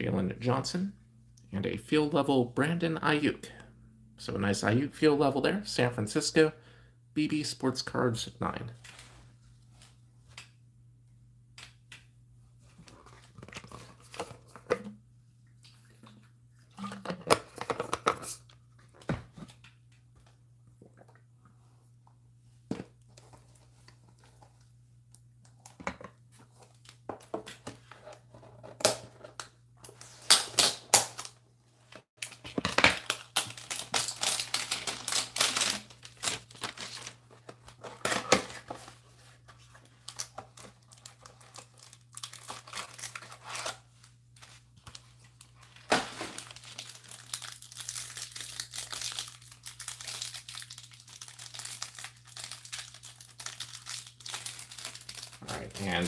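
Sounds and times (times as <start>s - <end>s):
cellophane wrappers crinkling: 32.2s - 37.8s, 39.7s - 43.8s, 44.4s - 56.0s.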